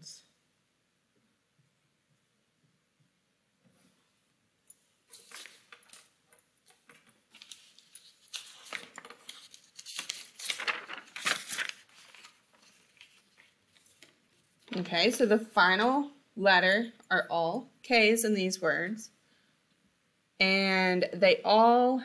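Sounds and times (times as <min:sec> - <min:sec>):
irregular rustling and scraping: 0:03.6 - 0:15.2.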